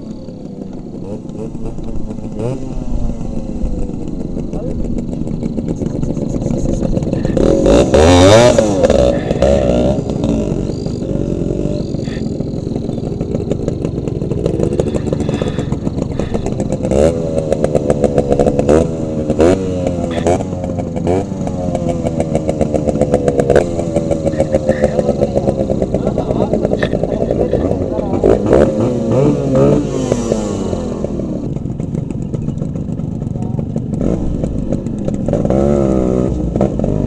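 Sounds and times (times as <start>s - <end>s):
engine revving: 0.0s - 37.0s
two-stroke motorcycle engines: 0.0s - 37.0s.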